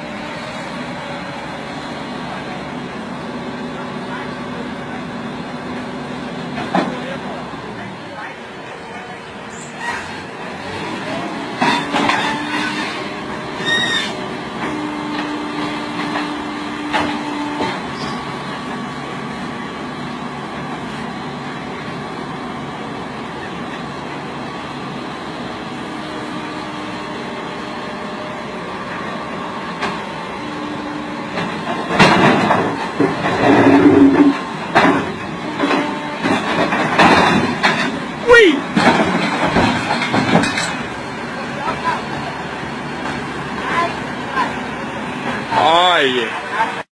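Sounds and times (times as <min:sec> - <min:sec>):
excavator engine and hydraulics: 0:00.0 - 0:46.9
hydraulic whine: 0:32.6 - 0:36.4.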